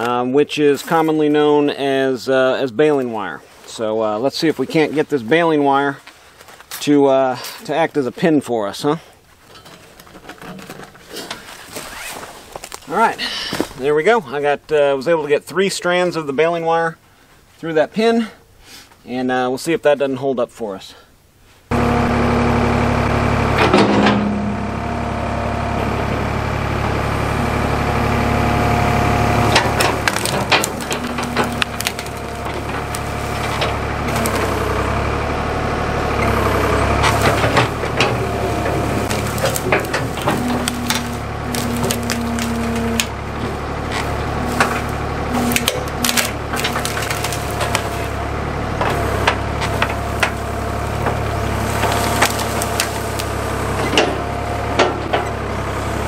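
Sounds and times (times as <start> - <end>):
branches cracking and snapping: 9.9 - 13.9, 28.0 - 35.3, 36.0 - 55.8
backhoe engine running: 21.7 - 56.0.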